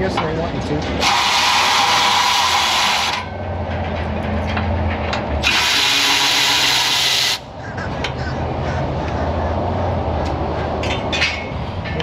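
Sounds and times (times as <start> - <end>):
electric ratchet running: 1.0 - 3.2, 5.4 - 7.4.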